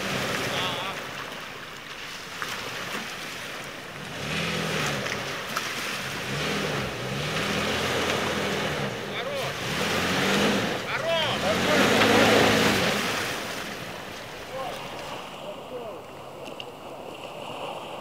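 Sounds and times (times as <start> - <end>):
truck engine under load: 3.8 - 14.4.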